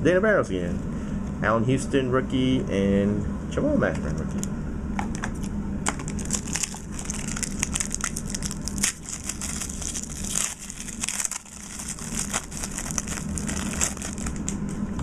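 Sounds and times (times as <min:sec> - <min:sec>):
wrapper crinkling and crackling: 0:05.9 - 0:14.8.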